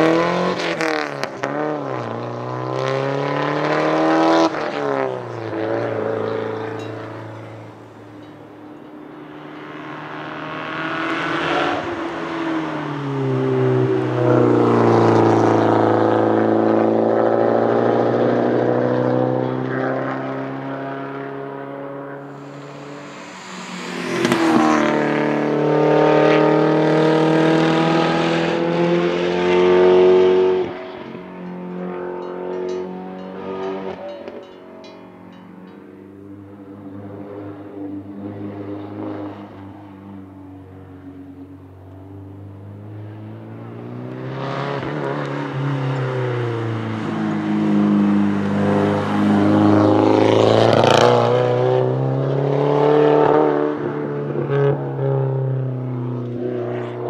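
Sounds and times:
race car engine accelerating: 0:09.2 - 0:34.4, 0:41.8 - 0:57.0.

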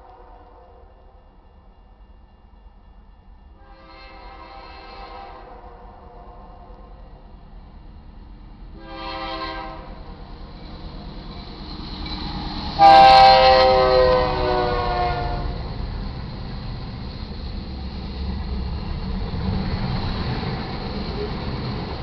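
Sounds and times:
freight train rumble: 0:00.0 - 0:22.0
locomotive horn blasts: 0:03.6 - 0:06.3, 0:08.8 - 0:10.1, 0:12.8 - 0:15.6.

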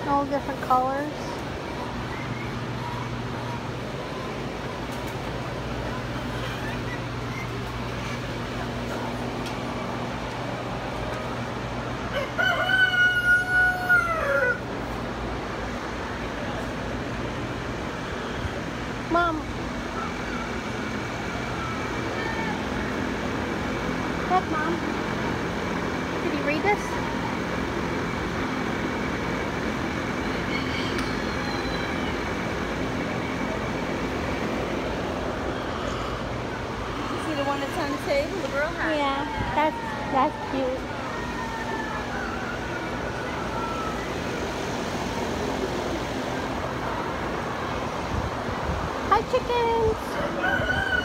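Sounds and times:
steady background hum: 0:00.0 - 0:51.0
rooster crowing: 0:12.1 - 0:14.7, 0:21.4 - 0:23.0, 0:30.2 - 0:32.3, 0:39.3 - 0:44.1, 0:50.1 - 0:51.0.

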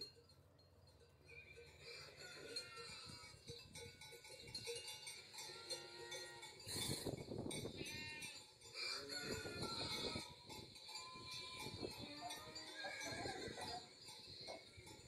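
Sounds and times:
cows mooing: 0:05.4 - 0:06.9.

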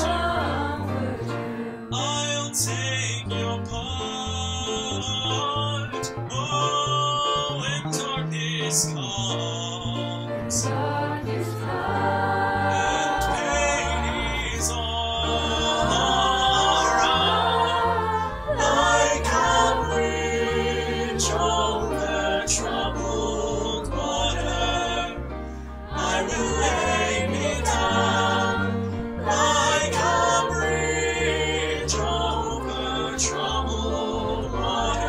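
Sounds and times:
choir of young voices singing: 0:00.0 - 0:02.1, 0:10.4 - 0:35.0
sustained low accompanying notes: 0:10.2 - 0:35.0.

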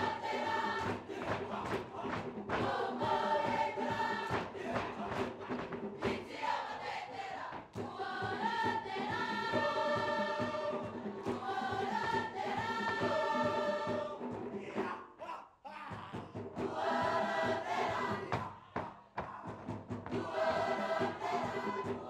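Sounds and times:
steady beat: 0:00.0 - 0:06.8, 0:07.4 - 0:15.0, 0:15.9 - 0:22.0
group singing in chords: 0:00.0 - 0:15.2, 0:16.3 - 0:22.0.

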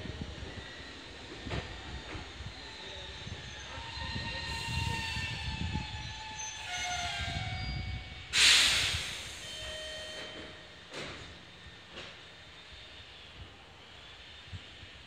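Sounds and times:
compressed air hiss: 0:08.3 - 0:09.5.

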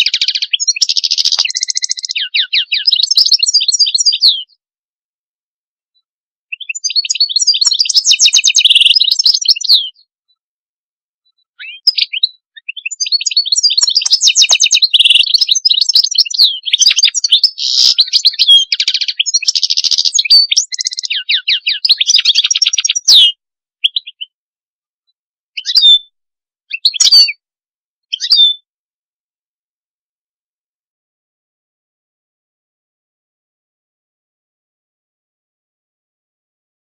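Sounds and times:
bird twittering and trilling: 0:00.0 - 0:04.6, 0:06.5 - 0:10.1, 0:11.5 - 0:24.4, 0:25.6 - 0:26.1, 0:26.7 - 0:27.4, 0:28.1 - 0:28.7
short bird calls: 0:13.9 - 0:24.3.

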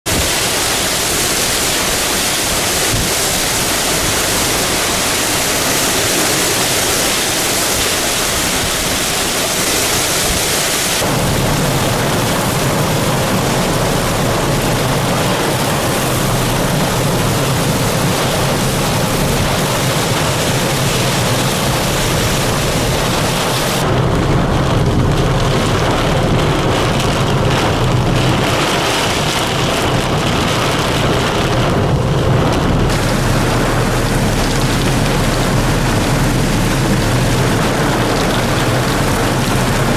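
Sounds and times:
heavy rain pouring: 0:00.0 - 0:39.9
strong wind: 0:00.0 - 0:39.9.

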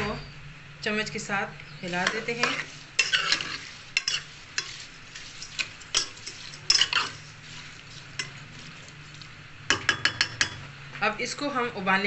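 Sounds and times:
metal ladle scraping steel pot: 0:01.9 - 0:08.4.

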